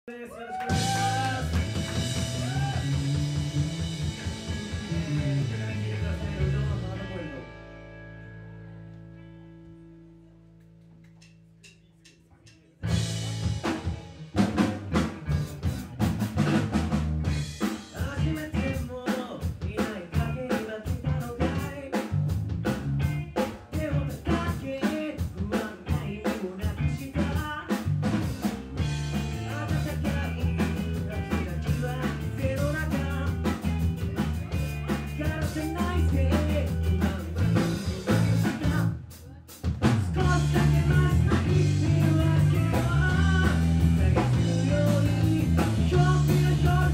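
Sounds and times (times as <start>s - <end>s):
person singing: 0.1s - 3.4s, 4.2s - 7.5s, 17.8s - 22.2s, 23.4s - 27.9s, 29.1s - 46.9s
drum kit: 0.4s - 8.0s, 10.7s - 46.9s
electric guitar: 0.4s - 10.8s, 12.8s - 46.9s
electric bass: 0.6s - 11.6s, 12.8s - 19.0s, 20.1s - 24.8s, 25.4s - 46.9s.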